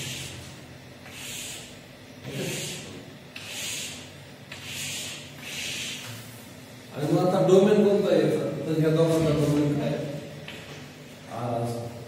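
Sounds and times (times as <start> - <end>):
chalk drawing on blackboard: 0.0 - 6.5.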